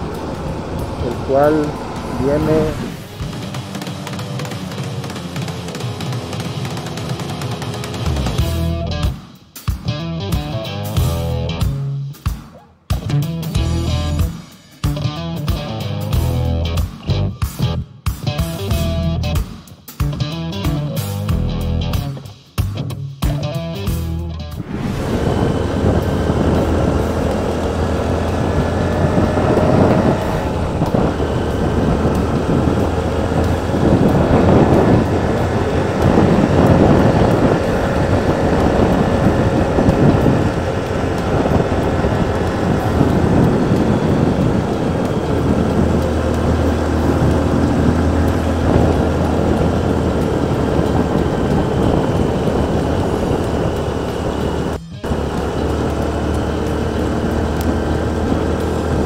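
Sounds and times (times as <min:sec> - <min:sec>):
wind rushing over microphone: 0:00.0 - 0:03.7, 0:24.5 - 0:59.0
small motorcycle engine running: 0:00.0 - 0:09.0, 0:13.5 - 0:14.3, 0:24.6 - 0:59.0.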